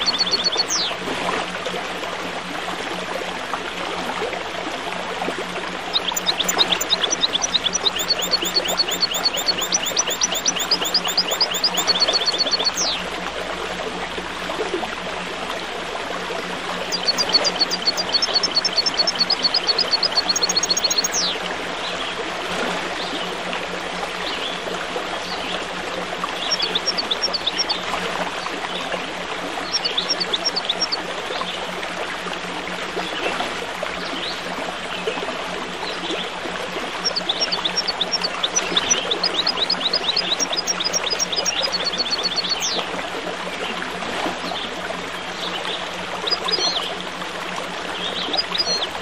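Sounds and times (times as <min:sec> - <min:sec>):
songbirds chirping: 0:00.0 - 0:00.9, 0:05.9 - 0:13.0, 0:16.9 - 0:21.4, 0:37.0 - 0:42.8
stream water flowing: 0:00.0 - 0:49.0.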